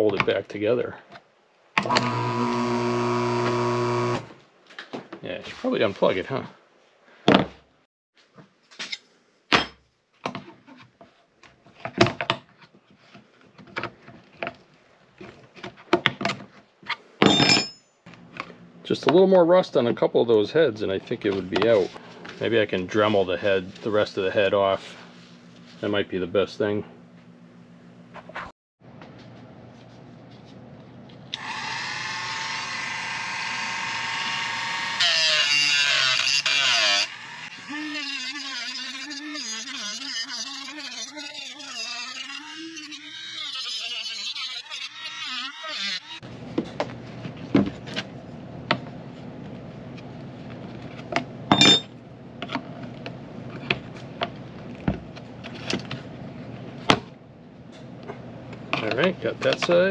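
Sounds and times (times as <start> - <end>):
cutting wheel grinding screw: 1.8 - 4.4, 31.4 - 46.2
rotary tool high whine: 1.8 - 4.4, 31.4 - 46.2.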